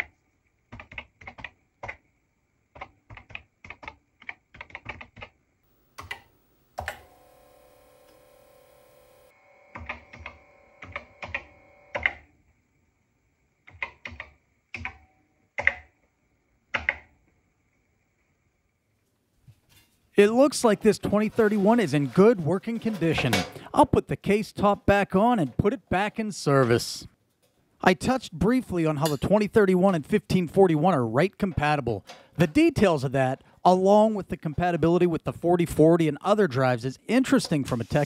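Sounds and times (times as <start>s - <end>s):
keyboard typing: 0.7s - 2.0s, 2.7s - 7.0s, 9.2s - 12.2s
disk drive humming: 5.7s - 12.1s.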